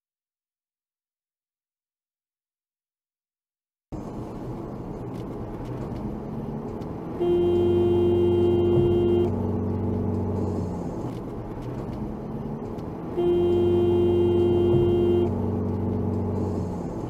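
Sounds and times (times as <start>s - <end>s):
car engine and road noise: 3.9s - 17.0s
car horn blast: 7.2s - 9.4s, 13.1s - 15.4s.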